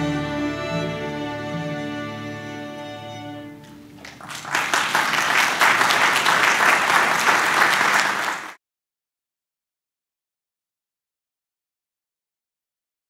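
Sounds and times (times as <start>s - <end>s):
string orchestra held chord: 0.0s - 4.0s
audience applause: 3.9s - 8.6s.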